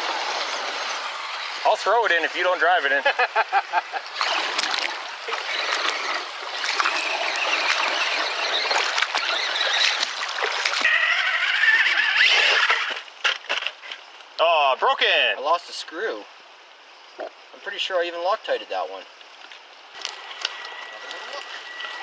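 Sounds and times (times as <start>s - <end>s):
water splashing: 0.0s - 13.4s
shallow creek running: 0.0s - 22.0s
wavering motor whine: 5.2s - 10.9s, 20.2s - 22.0s.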